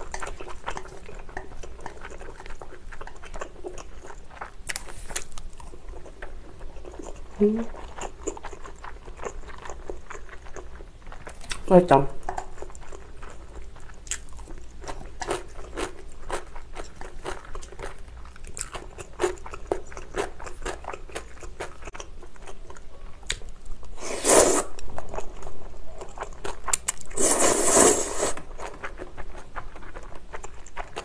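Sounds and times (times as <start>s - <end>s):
wet chewing: 0.0s - 23.5s, 24.2s - 31.0s
noodle slurps: 24.0s - 24.8s, 27.1s - 28.4s.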